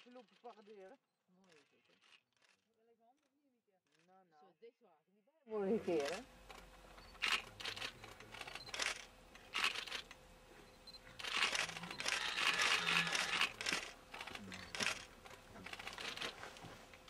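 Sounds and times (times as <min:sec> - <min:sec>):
rustling and crinkling: 0:11.0 - 0:17.0.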